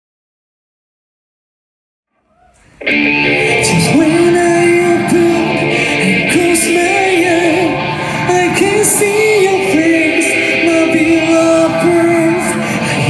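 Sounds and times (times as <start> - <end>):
person singing: 2.3 - 13.0
live rock band playing: 2.8 - 13.0.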